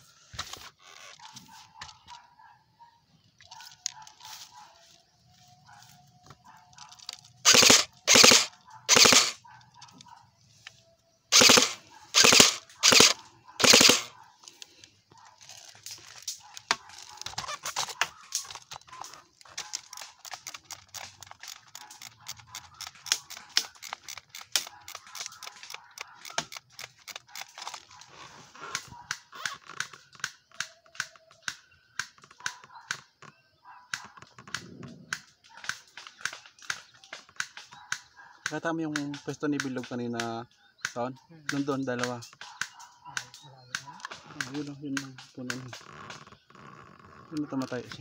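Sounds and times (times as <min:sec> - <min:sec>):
airsoft guns firing: 0:07.4 - 0:09.4, 0:11.3 - 0:14.2.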